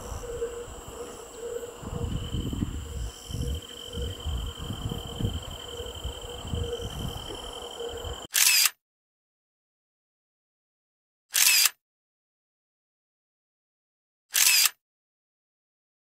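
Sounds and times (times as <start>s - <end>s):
high even insect note: 0.0s - 8.3s
insects trilling: 0.0s - 8.3s
wind buffeting microphone: 0.0s - 8.3s.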